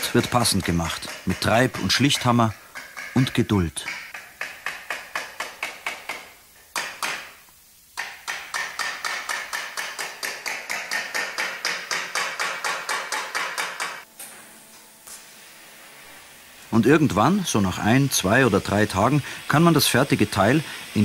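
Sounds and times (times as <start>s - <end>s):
hammer striking sheet steel: 0.0s - 7.4s, 8.0s - 14.4s.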